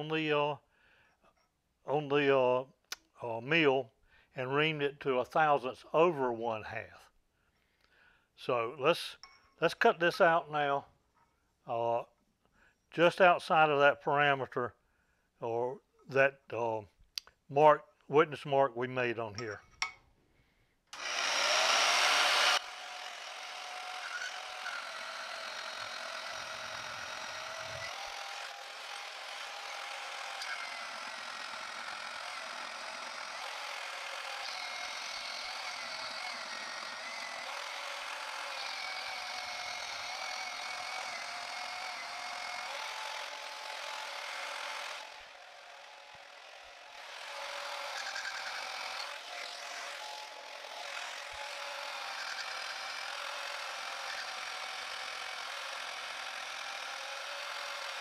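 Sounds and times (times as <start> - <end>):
bandsaw cutting metal: 20.9 - 58.0.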